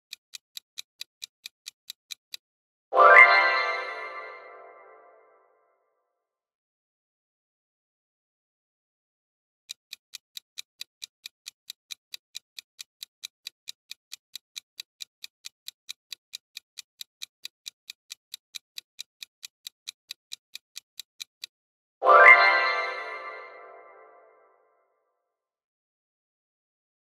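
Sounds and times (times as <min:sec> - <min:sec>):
countdown timer ticking: 0:09.8 - 0:24.4.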